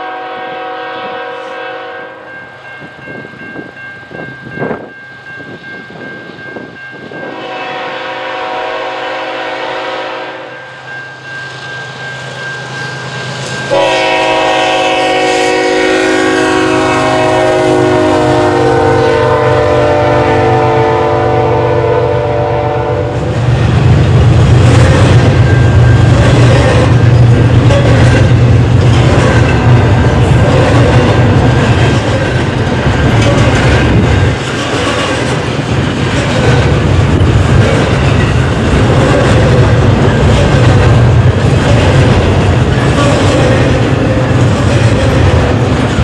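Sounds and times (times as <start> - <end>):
locomotive air horn blasts: 0.0 - 2.3, 7.2 - 10.6, 13.7 - 23.3
train engine and wheels rumbling: 0.0 - 46.0.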